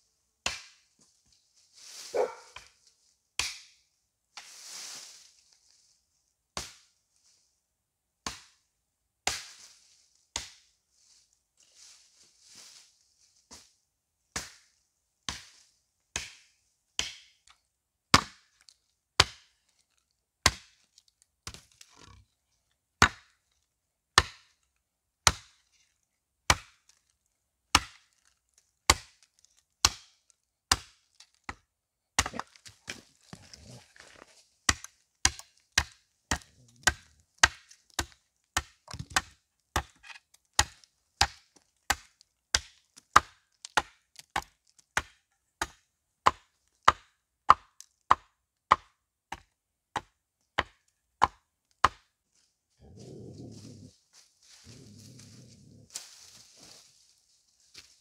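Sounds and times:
hatchet chopping wood: 0:00.4 - 0:00.8, 0:03.4 - 0:03.8, 0:06.6 - 0:06.8, 0:08.2 - 0:08.6, 0:10.3 - 0:10.6, 0:14.3 - 0:14.7, 0:16.1 - 0:16.4, 0:17.0 - 0:17.4, 0:18.1 - 0:18.6, 0:19.2 - 0:19.5, 0:20.4 - 0:20.8, 0:21.4 - 0:21.7, 0:23.0 - 0:23.4, 0:24.2 - 0:24.5, 0:25.2 - 0:25.6, 0:26.5 - 0:26.9, 0:27.7 - 0:28.1, 0:28.9 - 0:29.2, 0:29.8 - 0:33.7, 0:34.7 - 0:52.1.

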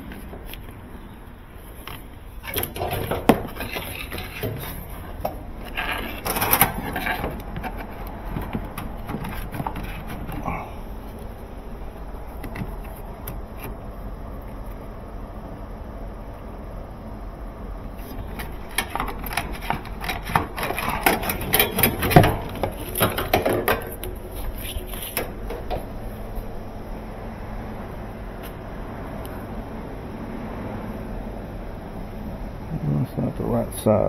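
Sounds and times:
plastic hose scraping and rubbing: 0:01.6 - 0:11.3, 0:12.3 - 0:13.8, 0:18.0 - 0:26.6.

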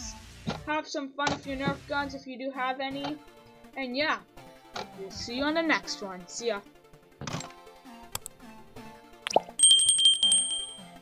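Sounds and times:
background music: 0:00.0 - 0:11.0
click and pop: 0:09.3 - 0:09.6
small bell trill: 0:09.6 - 0:11.0.

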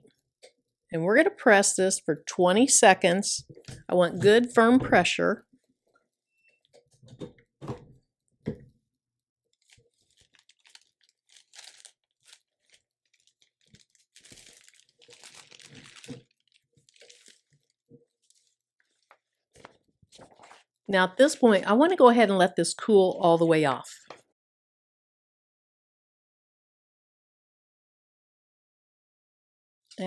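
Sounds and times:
sheet and paper rustling: 0:09.6 - 0:20.7.

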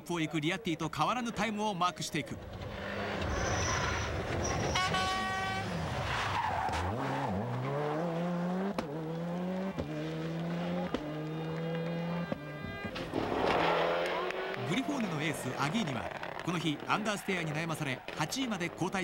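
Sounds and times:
rally car engine revving: 0:02.4 - 0:19.0
tyre noise rush: 0:12.8 - 0:18.8
gear change cracks: 0:15.6 - 0:17.0.

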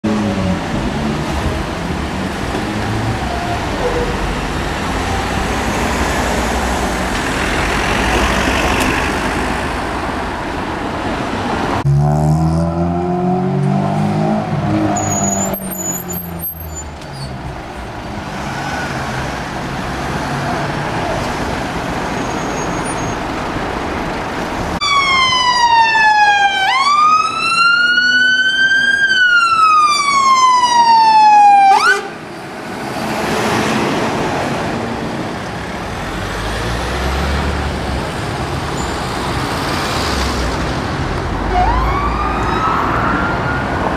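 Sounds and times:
fire engine siren wailing: 0:24.8 - 0:32.2, 0:41.4 - 0:43.9.

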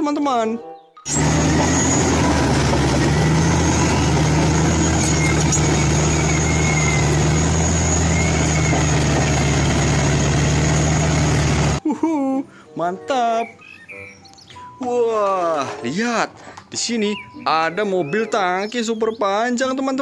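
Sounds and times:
faint high squeals: 0:01.1 - 0:11.4
bulldozer diesel engine under load: 0:01.1 - 0:11.8.

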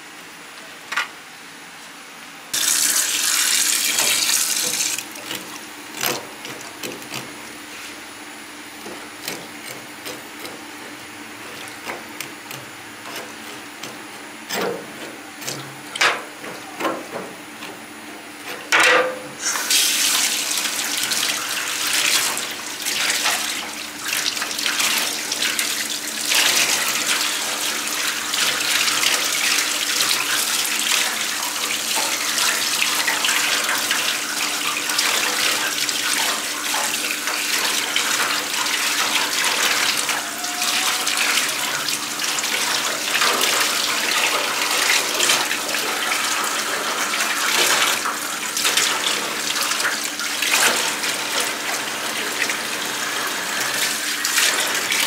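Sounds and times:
tap water running into sink: 0:02.6 - 0:07.4, 0:19.5 - 0:55.0.

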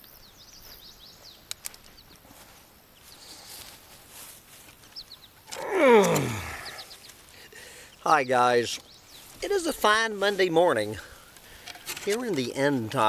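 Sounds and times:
faint bird chirps: 0:04.9 - 0:09.4.

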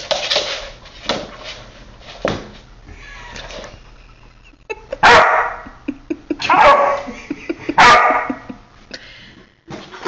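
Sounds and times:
puppy barking: 0:05.0 - 0:05.7, 0:06.4 - 0:07.1, 0:07.8 - 0:08.5.

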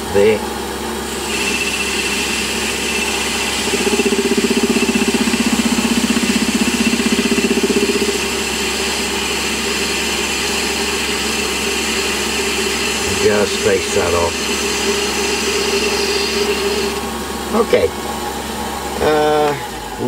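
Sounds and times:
metal lathe whining: 0:00.7 - 0:20.0
fast rhythmic knocking of cutting tool: 0:01.1 - 0:17.1.

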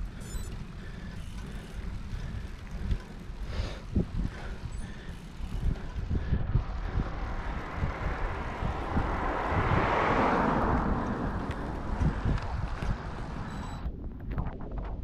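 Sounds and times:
wind buffeting microphone: 0:00.0 - 0:15.0
passing vehicle rushing: 0:05.2 - 0:13.8.

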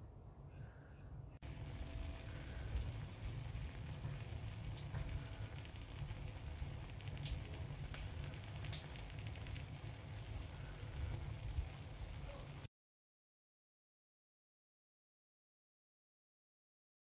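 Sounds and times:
steady low rumble: 0:00.0 - 0:12.7
fat sizzling with pops: 0:01.4 - 0:12.7.

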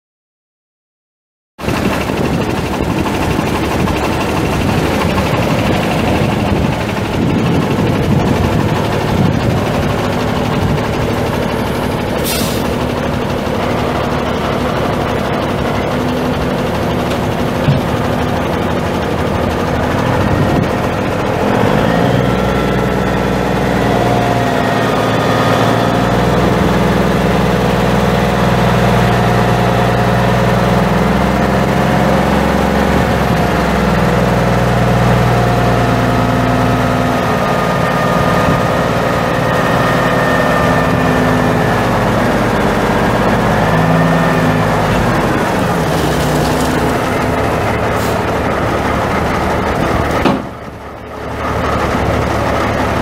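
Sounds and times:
diesel truck engine running: 0:01.6 - 0:53.0.

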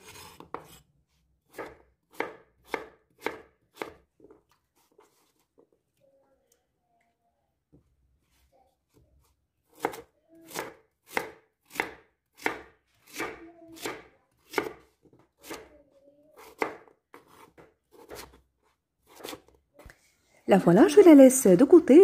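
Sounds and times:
knife slicing on cutting board: 0:00.0 - 0:00.8, 0:16.4 - 0:18.4, 0:19.0 - 0:19.4.

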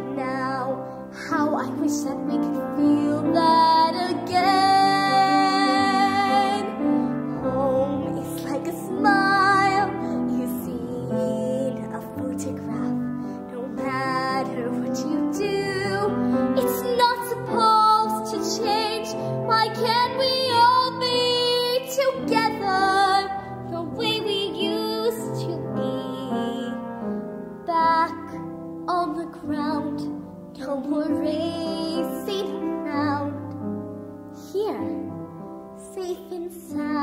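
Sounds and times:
girl singing a slow ballad: 0:00.0 - 0:37.0
girl breathing: 0:13.1 - 0:13.5.

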